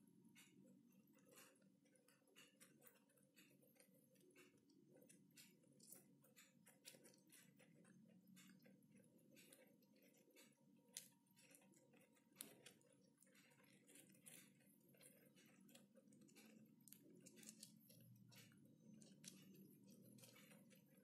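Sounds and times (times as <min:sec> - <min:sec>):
faint low hum: 0:00.0 - 0:21.0
hamsters scrabbling in seeds: 0:00.8 - 0:21.0.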